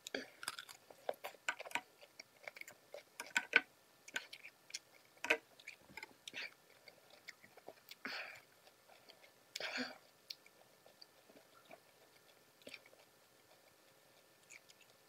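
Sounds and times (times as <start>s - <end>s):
cucumber crunching: 0.0s - 8.0s.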